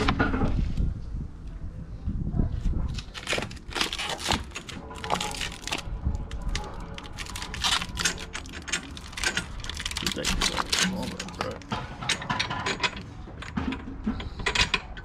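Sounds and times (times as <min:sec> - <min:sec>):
packaging crinkling: 0:02.9 - 0:11.7.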